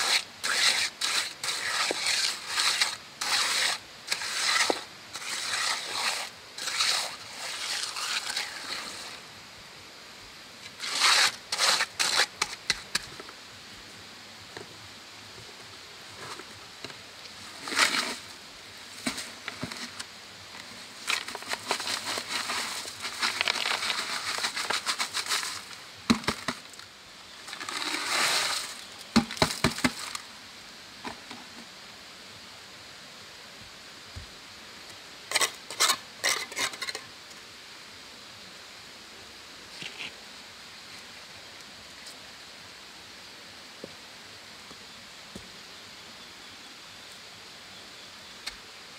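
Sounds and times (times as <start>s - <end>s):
mortar scraped from plastic bucket: 0.0s - 9.2s, 10.6s - 13.1s, 17.5s - 18.3s, 18.9s - 20.1s, 21.0s - 26.7s, 27.5s - 30.2s, 35.3s - 37.0s
mortar sliding out of bucket: 0.0s - 9.2s, 10.6s - 13.0s, 17.5s - 18.3s, 21.0s - 26.6s, 27.5s - 30.2s.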